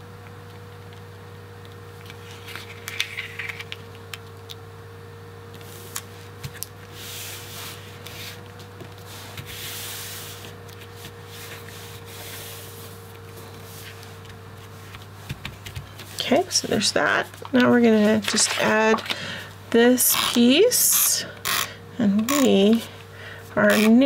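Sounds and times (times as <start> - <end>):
low electrical hum: 0.0 - 24.0
hands rubbing paper: 5.6 - 19.1.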